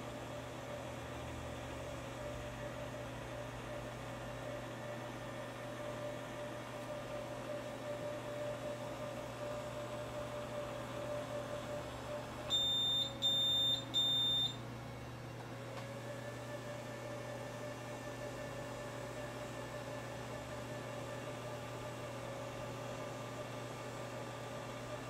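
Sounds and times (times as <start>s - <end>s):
electrical hum: 0.0s - 25.0s
short electronic beeps: 12.5s - 14.6s.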